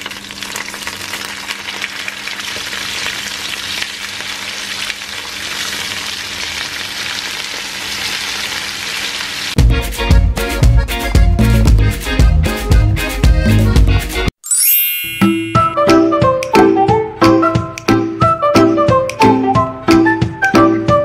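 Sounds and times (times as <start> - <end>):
chicken sizzling in hot oil: 0.0 - 9.6.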